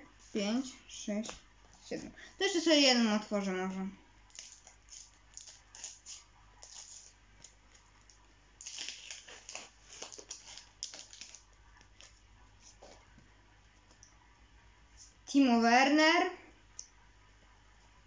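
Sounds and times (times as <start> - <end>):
sticker packet rustling: 4.3 - 12.2.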